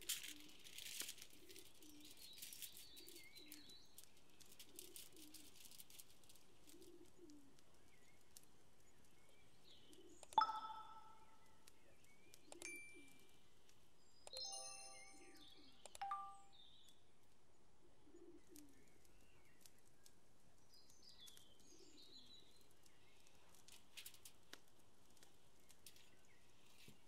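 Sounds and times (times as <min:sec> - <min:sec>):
doves cooing: 0:00.0 - 0:03.8, 0:04.4 - 0:08.7, 0:17.8 - 0:19.0
rustling: 0:00.0 - 0:07.0
thin bird chirps: 0:01.4 - 0:05.8, 0:07.8 - 0:17.0.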